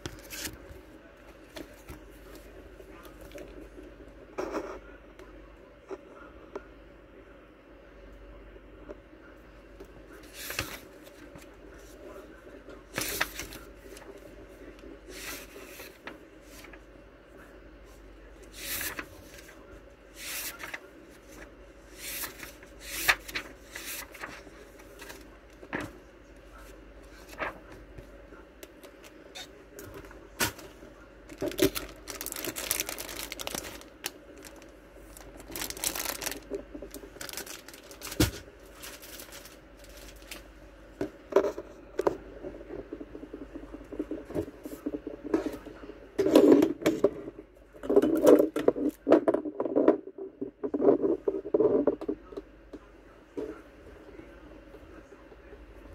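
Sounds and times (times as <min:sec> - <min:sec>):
paper pages flipping: 0:00.0 - 0:03.8, 0:18.6 - 0:19.6, 0:20.2 - 0:25.9, 0:31.3 - 0:40.4
faint steady hum: 0:00.0 - 0:55.9.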